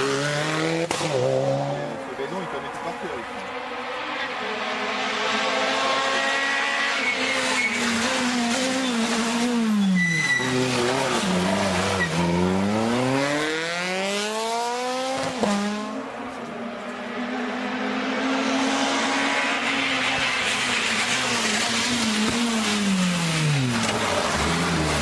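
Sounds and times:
rally car engine revving: 0:00.0 - 0:16.2, 0:17.2 - 0:25.0
tyre squeal: 0:06.3 - 0:12.5.

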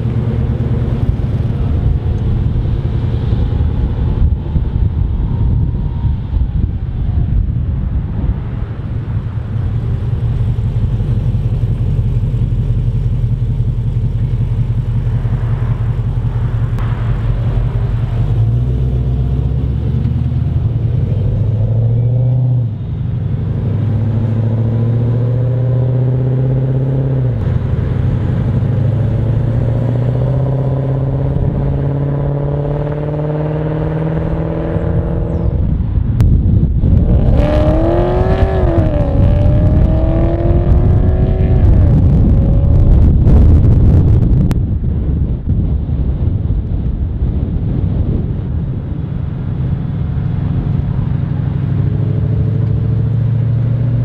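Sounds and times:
car engine accelerating and shifting: 0:00.0 - 0:45.4, 0:46.1 - 0:54.0.

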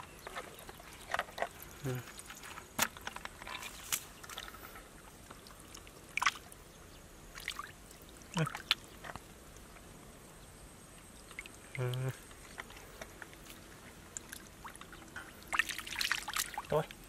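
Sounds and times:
hands splashing in shallow water: 0:15.5 - 0:16.7.

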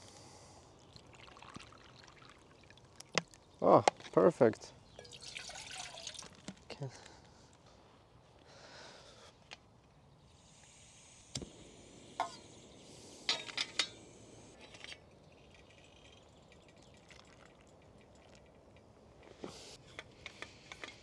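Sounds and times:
metal cookware clinking: 0:12.2 - 0:12.4, 0:13.3 - 0:14.0.

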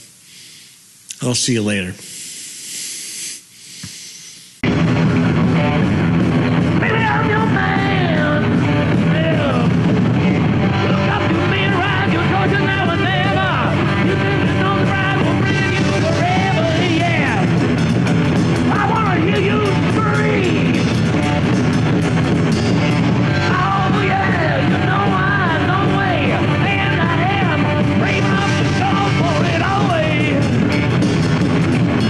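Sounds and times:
short hiss: 0:02.0 - 0:04.6
heavy metal band playing live: 0:04.6 - 0:32.0
male singer: 0:06.8 - 0:17.6, 0:18.7 - 0:20.9, 0:23.4 - 0:30.6.

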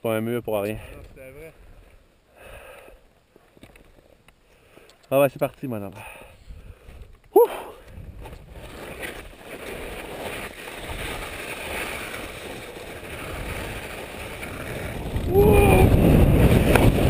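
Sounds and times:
wind on microphone: 0:07.8 - 0:08.8, 0:13.0 - 0:17.0
skis scraping on snow: 0:07.8 - 0:17.0.

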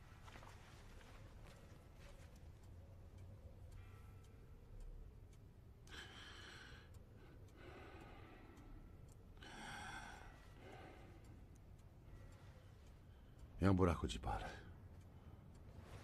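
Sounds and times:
man breathing deeply: 0:05.8 - 0:12.4.

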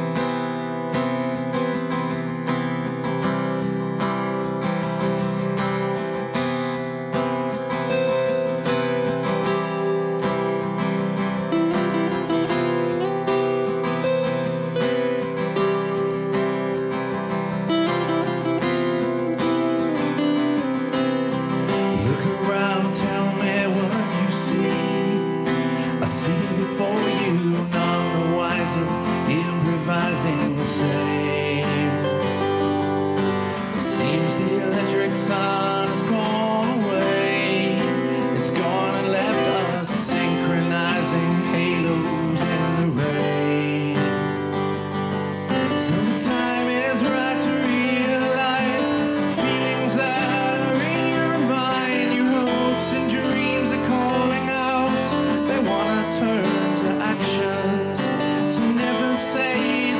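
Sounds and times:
acoustic guitars strummed and picked: 0:00.0 - 0:59.9
man singing: 0:17.6 - 0:59.9.

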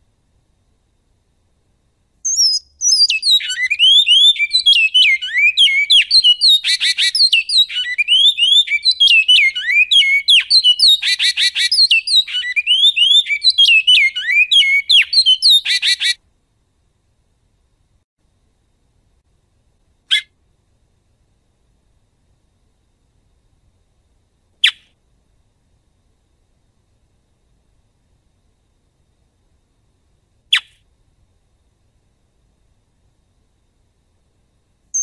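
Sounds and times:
bird singing whistled notes: 0:02.2 - 0:16.2.

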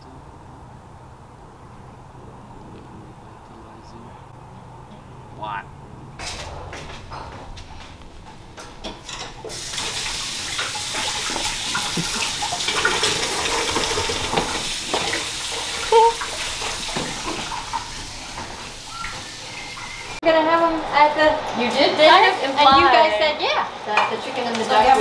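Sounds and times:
knocks and clinks: 0:06.2 - 0:09.6
tap running into sink: 0:08.8 - 0:15.2.

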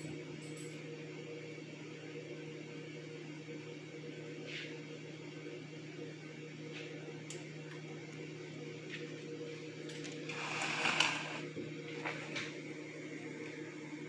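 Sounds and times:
low appliance hum: 0:00.0 - 0:14.0
rustling scrape: 0:10.3 - 0:12.4.

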